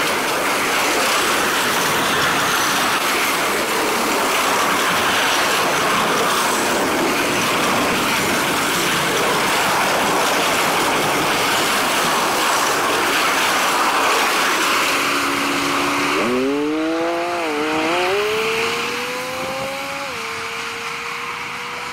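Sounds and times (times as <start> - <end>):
freight train passing: 0.0 - 21.9
wavering whine rising in pitch: 13.3 - 21.9.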